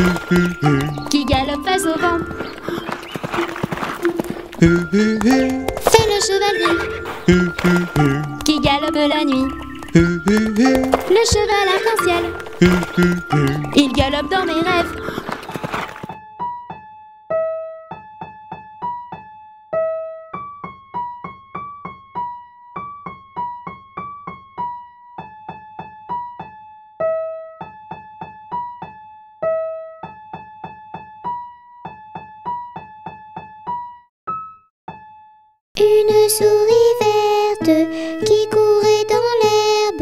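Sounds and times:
electric piano melody: 0.0s - 25.4s.

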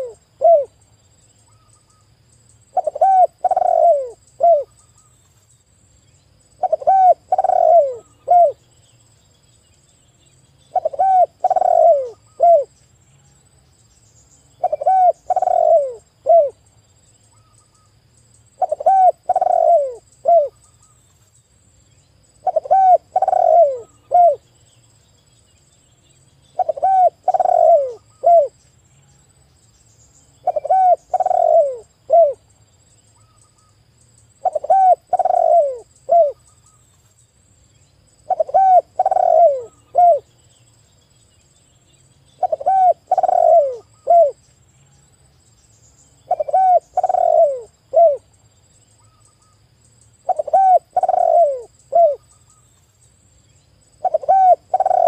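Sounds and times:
dove cooing: 0.0s - 0.8s, 2.7s - 4.7s, 6.6s - 8.6s, 10.7s - 12.8s, 14.6s - 16.6s, 18.6s - 20.6s, 22.4s - 24.5s, 26.6s - 28.6s, 30.4s - 32.5s, 34.4s - 36.4s, 38.2s - 40.3s, 42.4s - 44.4s, 46.3s - 48.3s, 50.2s - 52.2s, 54.0s - 55.0s.

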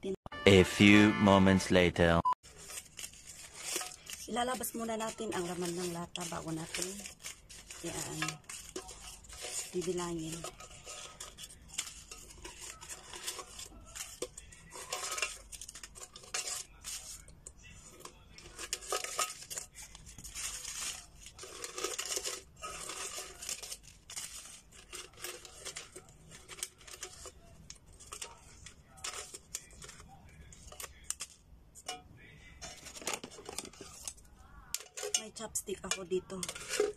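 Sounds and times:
paper scraping against metal: 2.4s - 32.0s, 32.6s - 36.9s
tin can knocking and rattling: 32.6s - 34.1s.

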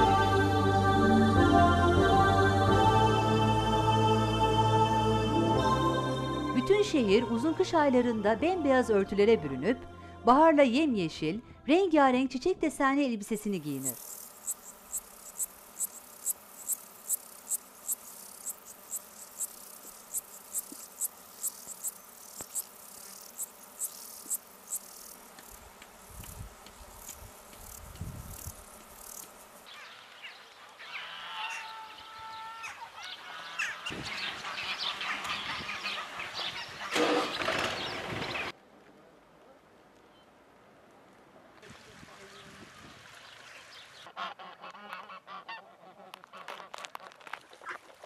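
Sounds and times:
cricket chirping: 13.6s - 29.8s
geese calling and honking: 30.6s - 37.4s, 44.0s - 47.0s.

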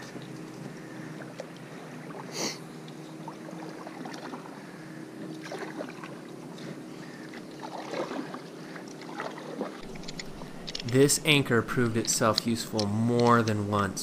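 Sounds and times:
paddle splashing in water: 3.2s - 4.6s, 5.3s - 6.3s, 7.3s - 10.2s.

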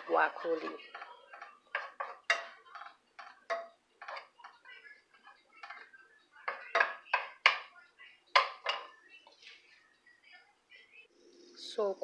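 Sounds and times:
wooden spatula scraping frying pan: 0.0s - 7.7s.

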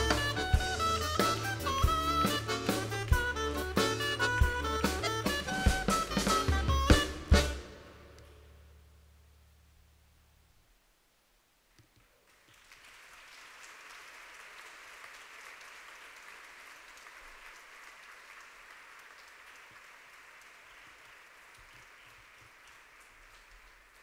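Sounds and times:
audience applauding: 0.0s - 6.8s, 12.2s - 24.0s.

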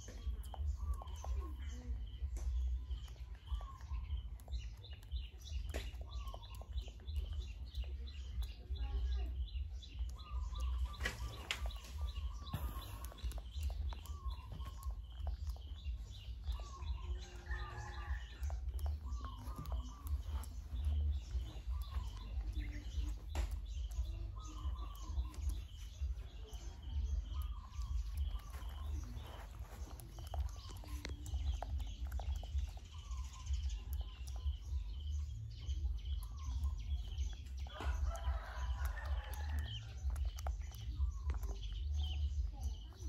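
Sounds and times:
low rumble: 0.0s - 42.9s
chickens clucking and calling: 10.1s - 42.9s.

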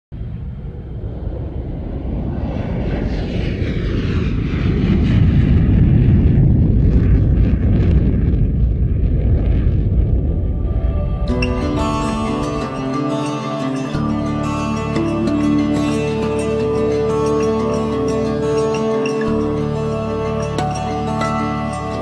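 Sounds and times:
deep rumbling jet-like whoosh: 0.1s - 12.8s.

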